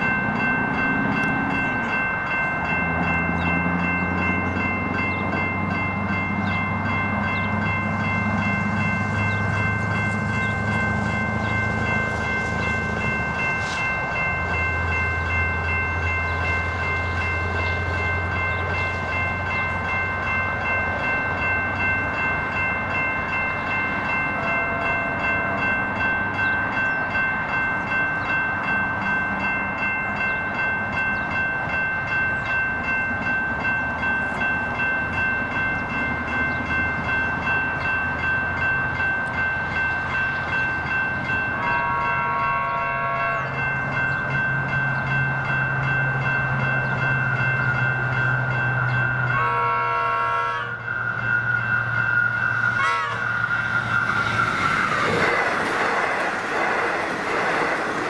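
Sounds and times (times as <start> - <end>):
level crossing bell ringing: 0.0 - 50.5
low train rumble: 0.0 - 58.0
train horn: 41.6 - 43.6, 49.3 - 50.9, 52.8 - 53.4.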